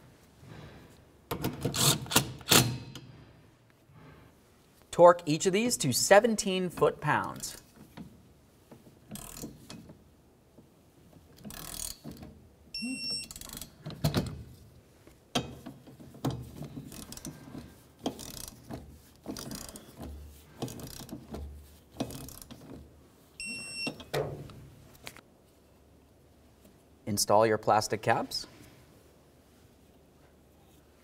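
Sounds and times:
torque wrench ratcheting: 0:09.1 - 0:09.5, 0:11.4 - 0:12.0, 0:16.9 - 0:17.4, 0:18.0 - 0:18.6, 0:19.3 - 0:19.9, 0:20.6 - 0:21.2, 0:22.0 - 0:22.6
short electronic beep: 0:12.8 - 0:13.3.

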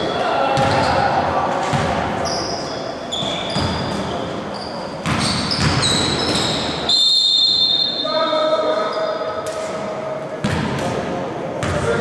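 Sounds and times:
sneakers squeaking on gym floor: 0:00.0 - 0:09.4
players' voices in large hall: 0:00.0 - 0:12.0
basketball bouncing: 0:00.6 - 0:01.0, 0:01.7 - 0:02.0, 0:05.0 - 0:06.4, 0:10.4 - 0:10.9.

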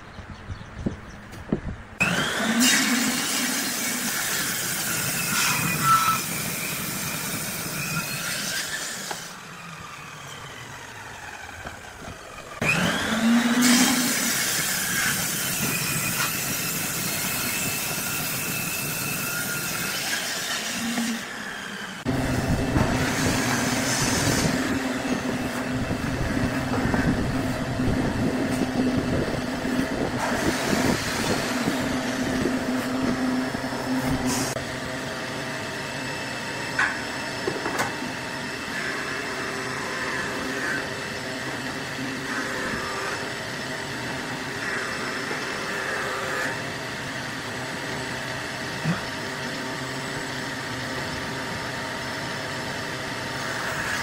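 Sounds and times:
table saw cutting wood: 0:02.0 - 0:54.0
steady hum: 0:22.0 - 0:40.2.

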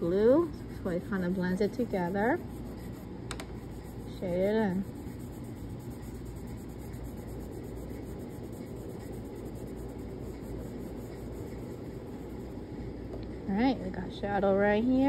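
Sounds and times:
fingertips rubbing on paper: 0:00.0 - 0:12.9.

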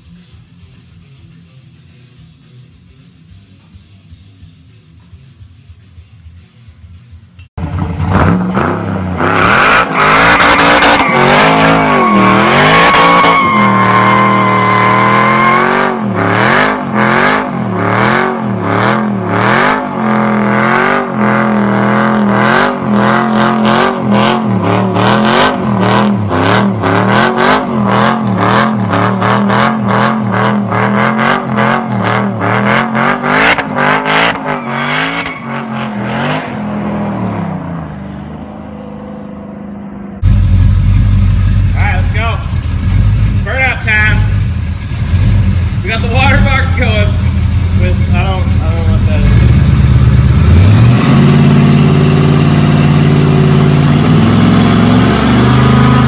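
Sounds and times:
truck engine revving: 0:07.6 - 0:56.0
tyres squealing: 0:09.9 - 0:15.8.

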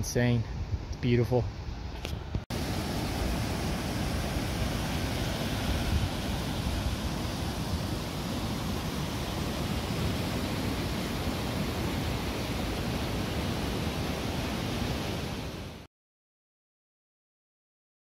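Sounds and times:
rushing stream water: 0:02.2 - 0:15.9.

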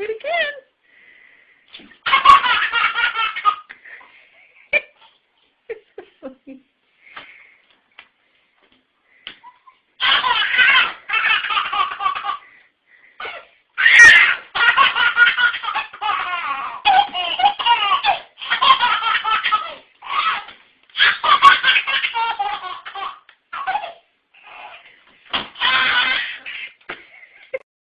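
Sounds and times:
baby laughing: 0:02.0 - 0:03.8, 0:09.4 - 0:12.6, 0:13.2 - 0:27.6.

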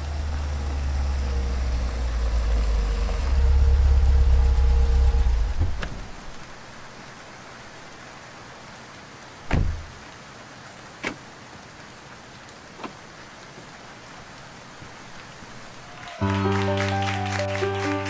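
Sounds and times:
car door slamming: 0:09.5 - 0:09.9.

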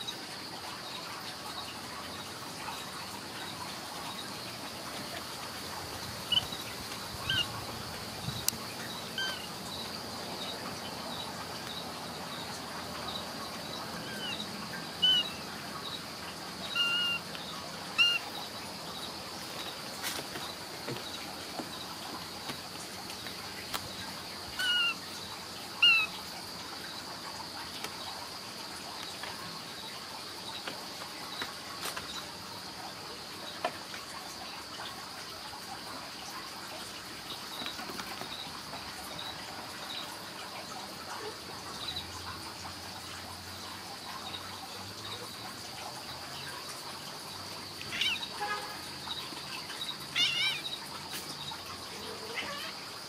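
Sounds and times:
short high chirping calls: 0:06.3 - 0:06.6, 0:07.2 - 0:07.6, 0:09.1 - 0:09.6, 0:14.0 - 0:15.4, 0:16.7 - 0:17.3, 0:18.0 - 0:18.4, 0:24.6 - 0:25.0, 0:25.8 - 0:26.2, 0:47.8 - 0:48.4, 0:50.1 - 0:50.8.

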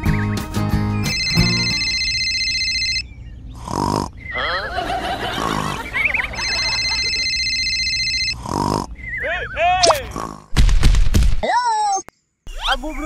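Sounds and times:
rasping cartoon snore: 0:03.6 - 0:04.2, 0:05.2 - 0:05.8, 0:08.4 - 0:09.0, 0:10.0 - 0:10.6.

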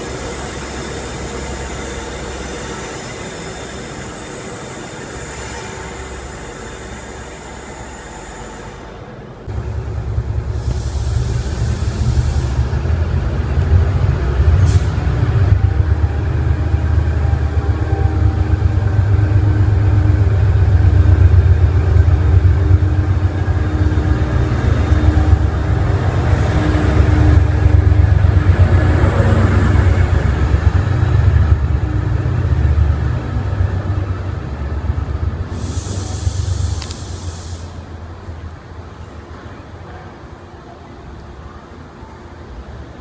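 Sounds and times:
diesel locomotive engine rumble: 0:00.0 - 0:43.0
short air hiss: 0:10.5 - 0:12.6, 0:14.6 - 0:15.0, 0:35.5 - 0:38.0.

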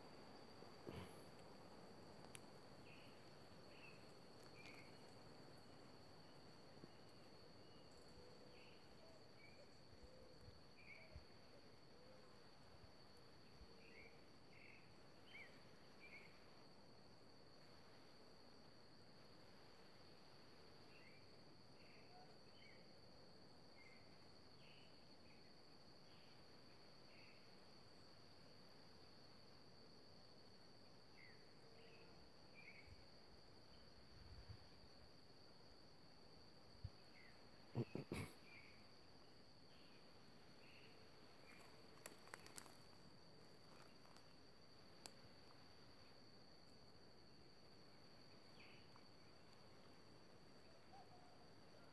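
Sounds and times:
high insect trill: 0:00.0 - 0:51.9
faint chirps: 0:02.2 - 0:12.5, 0:36.8 - 0:46.2, 0:48.0 - 0:51.9
soft chirps: 0:37.2 - 0:40.0.

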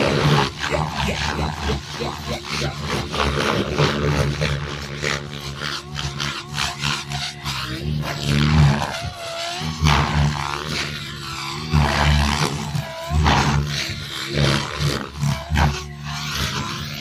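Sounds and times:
helicopter whine swooping: 0:00.0 - 0:17.0
rc helicopter rotor whooshing: 0:00.0 - 0:17.0.

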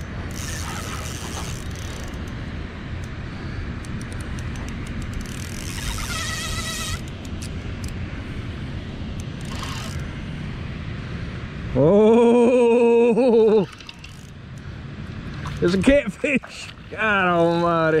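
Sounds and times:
faint reel clicks: 0:00.3 - 0:02.4, 0:03.8 - 0:08.0
fishing reel cranking: 0:00.3 - 0:02.4, 0:04.0 - 0:07.2, 0:09.4 - 0:10.0, 0:13.6 - 0:14.4
buzzing tone: 0:05.4 - 0:07.1.

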